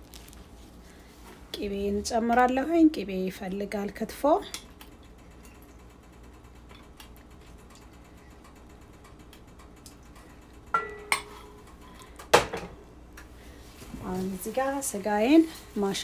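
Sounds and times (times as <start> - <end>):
cookware knock: 10.8 - 11.3.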